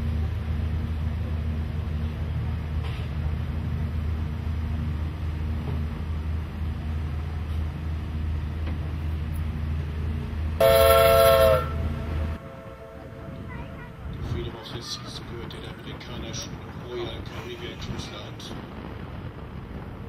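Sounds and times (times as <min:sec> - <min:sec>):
low rumble of ship machinery: 0:00.0 - 0:20.0
ship's horn blast: 0:10.6 - 0:14.3.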